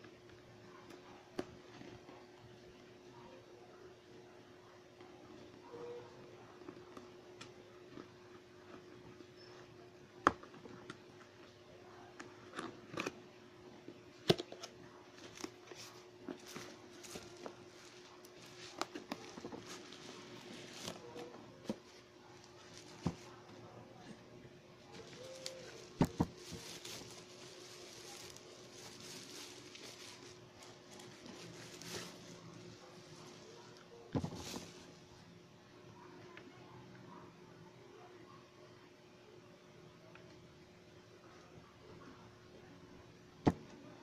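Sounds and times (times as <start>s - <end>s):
faint steady hum: 0.0s - 44.0s
cardboard and bubble wrap crinkling: 14.2s - 24.2s, 24.8s - 35.1s.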